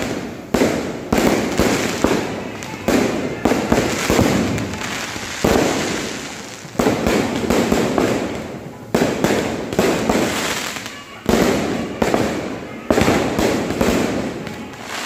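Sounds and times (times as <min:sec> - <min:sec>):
fireworks bangs with crackle: 0:00.0 - 0:15.0.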